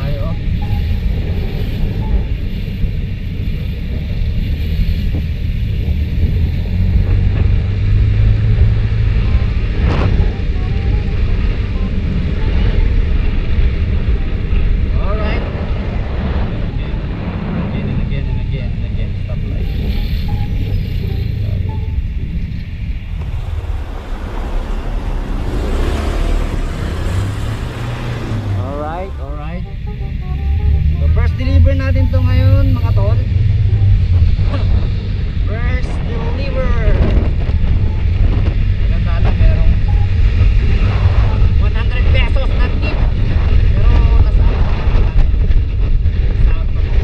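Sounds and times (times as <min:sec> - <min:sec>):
surrounding car traffic: 0:00.0 - 0:47.0
wind rumble on microphone: 0:00.0 - 0:47.0.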